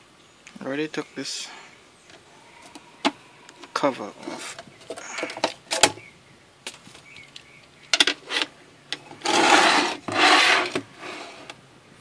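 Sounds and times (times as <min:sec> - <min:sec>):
loud rasping noises: 0:02.5 - 0:05.5, 0:09.1 - 0:11.6.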